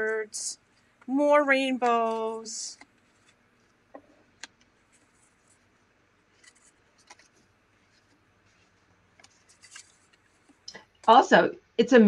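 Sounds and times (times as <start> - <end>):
cards flipped and tapped: 6.4 - 8.2.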